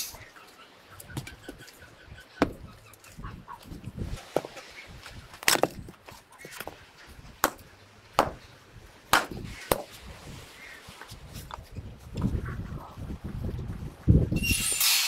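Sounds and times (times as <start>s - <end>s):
axe chopping wood: 5.4s - 5.8s, 7.4s - 8.4s, 9.1s - 10.0s.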